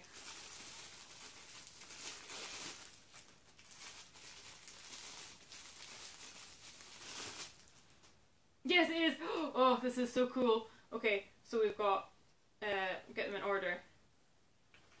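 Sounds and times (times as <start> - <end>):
wrapping crinkling: 0.0 - 8.2.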